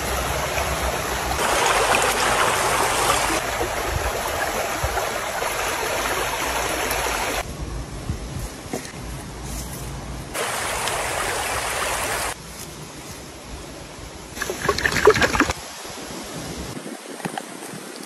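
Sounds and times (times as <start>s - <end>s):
stream flowing: 0.0s - 7.4s, 10.3s - 12.4s, 14.4s - 18.0s.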